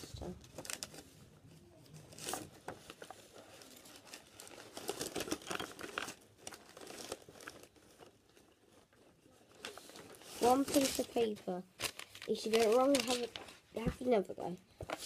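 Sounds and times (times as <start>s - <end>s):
paper rustling and crinkling: 0.0s - 15.0s.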